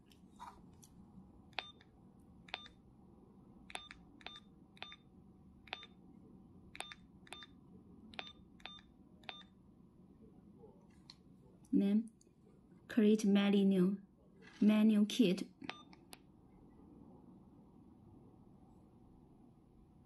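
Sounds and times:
keypad beeps and clicks: 0:01.6 - 0:01.8, 0:02.5 - 0:02.8, 0:03.7 - 0:05.0, 0:05.7 - 0:06.0, 0:06.8 - 0:07.6, 0:08.2 - 0:09.5, 0:15.6 - 0:16.2.

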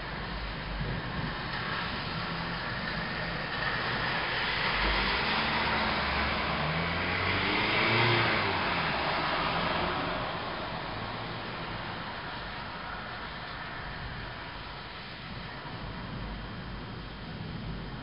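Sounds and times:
car driving past: 0:01.7 - 0:14.3.

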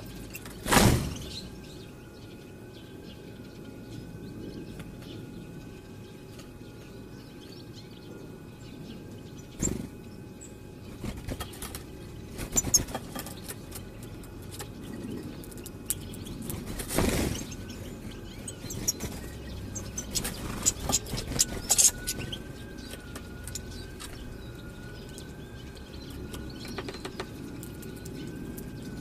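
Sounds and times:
birds chirping: 0:00.0 - 0:29.0
low steady rumble: 0:00.0 - 0:29.0
wing flutters: 0:00.3 - 0:01.5, 0:10.9 - 0:13.9, 0:14.6 - 0:24.2.

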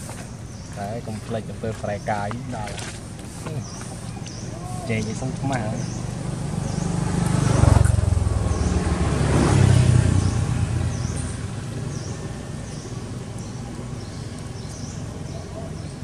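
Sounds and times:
vehicle engine passing: 0:03.6 - 0:16.0.

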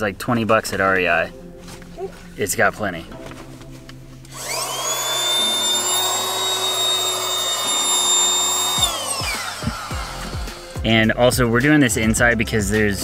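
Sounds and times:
electric air pump whining: 0:04.2 - 0:11.0.

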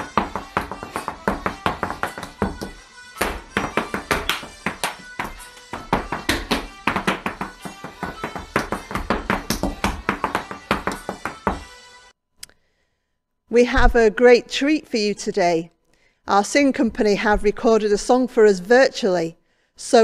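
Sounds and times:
hard-shoe steps on wooden floor: 0:00.0 - 0:11.7
background music: 0:00.0 - 0:12.2.

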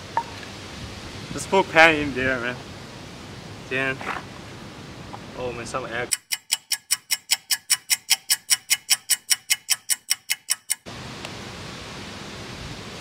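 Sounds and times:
steady background hiss: 0:00.0 - 0:06.1, 0:10.9 - 0:13.0
clock ticking: 0:06.1 - 0:10.9.

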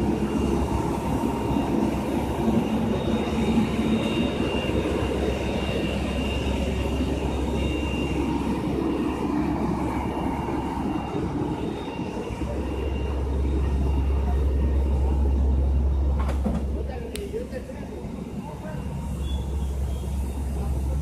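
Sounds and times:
diesel engine idling: 0:00.0 - 0:21.0
faint high whine: 0:00.0 - 0:21.0.

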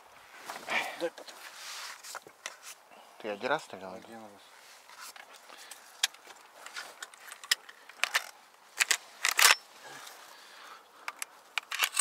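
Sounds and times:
shotgun handling clicks and rattles: 0:06.0 - 0:09.6, 0:11.0 - 0:12.0.

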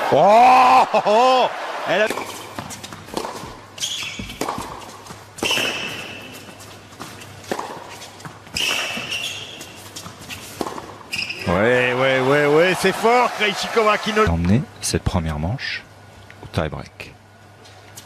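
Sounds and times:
tennis ball struck with rackets: 0:02.1 - 0:06.5, 0:07.4 - 0:09.3, 0:10.6 - 0:11.0
shoe squeal on court: 0:03.8 - 0:04.4, 0:08.5 - 0:09.8, 0:11.1 - 0:11.5.

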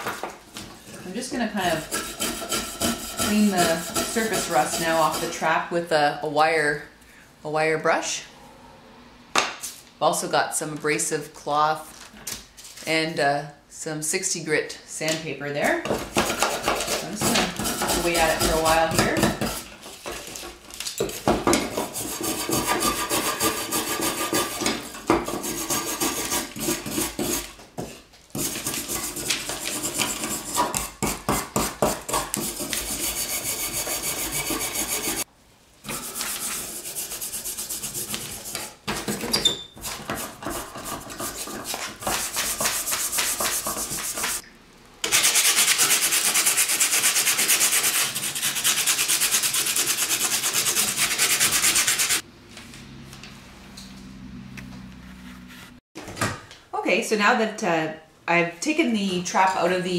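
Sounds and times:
abrasive pad rubbing steel: 0:01.1 - 0:05.5, 0:17.2 - 0:19.2, 0:32.4 - 0:35.3, 0:54.8 - 0:55.8
wire brush scrubbing steel: 0:01.1 - 0:05.5, 0:16.8 - 0:19.7, 0:21.8 - 0:27.5, 0:32.3 - 0:35.3, 0:35.9 - 0:38.8, 0:39.8 - 0:44.4, 0:45.1 - 0:52.2.

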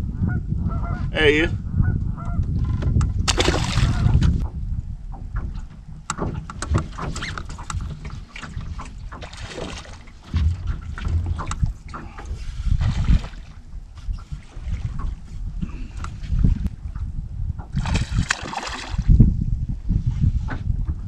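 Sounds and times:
wind rumbling on microphone: 0:00.0 - 0:21.0
fish splashing into water: 0:03.3 - 0:04.1, 0:17.8 - 0:19.1.

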